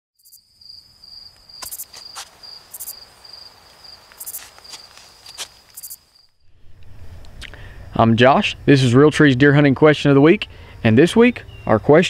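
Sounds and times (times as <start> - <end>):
higher insect buzzing calls: 0.2 - 6.4
insects trilling: 0.2 - 6.4.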